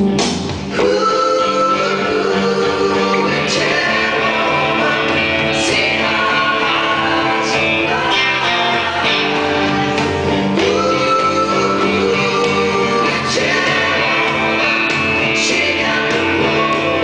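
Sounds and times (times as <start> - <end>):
electric guitar through amplifier: 0.0 - 17.0.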